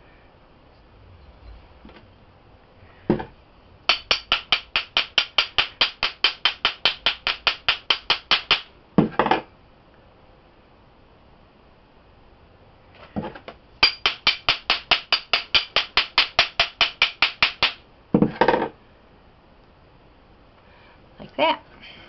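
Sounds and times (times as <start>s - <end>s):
rapid metallic tapping on mold: 3.1s - 9.5s, 13.8s - 18.7s.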